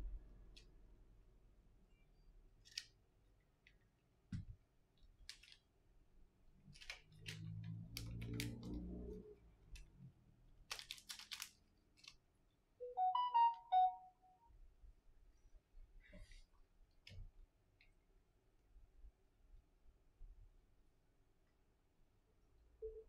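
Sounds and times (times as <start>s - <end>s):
electronic tones: 12.8s - 14.3s.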